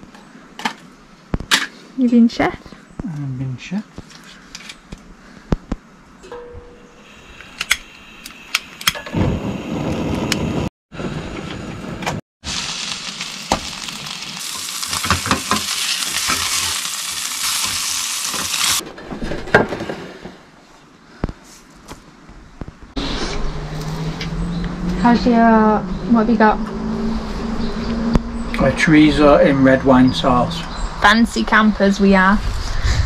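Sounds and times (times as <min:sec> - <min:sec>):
meat sizzling in a pan: 0:12.4 - 0:18.8.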